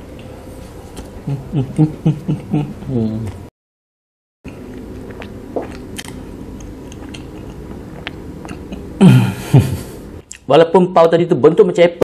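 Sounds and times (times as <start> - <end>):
man chewing: 4.5 - 10.4.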